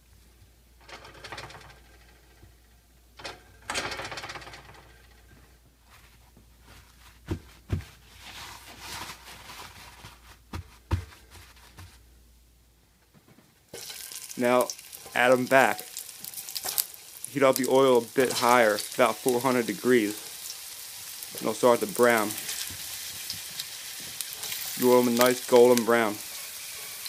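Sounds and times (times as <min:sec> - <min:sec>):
dull thumps: 0:03.3 - 0:08.1, 0:09.9 - 0:12.1
paper towels rustling: 0:05.8 - 0:12.1.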